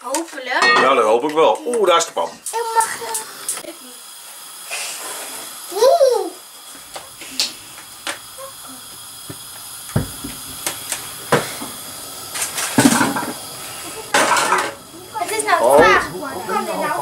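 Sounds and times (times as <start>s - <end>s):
faint steady hiss: 0.0s - 17.0s
frying pan clicks and knocks: 9.3s - 11.6s, 12.4s - 13.4s.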